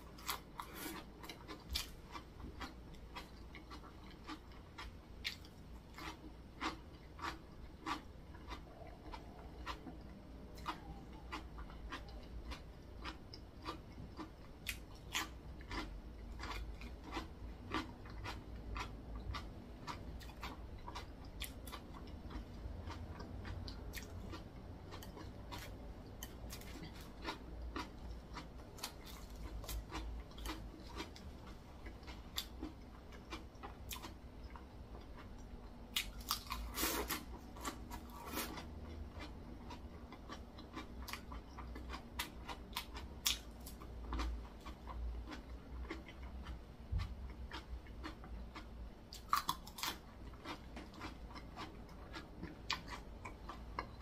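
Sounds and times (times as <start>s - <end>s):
person chewing crunchy food: 0.0s - 54.0s.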